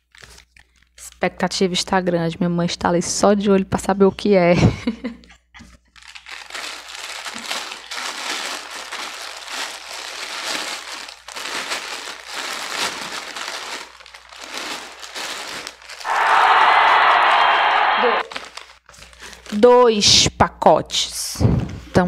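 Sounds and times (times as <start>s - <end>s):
plastic bag crinkling: 5.7s - 17.2s, 18.2s - 19.7s.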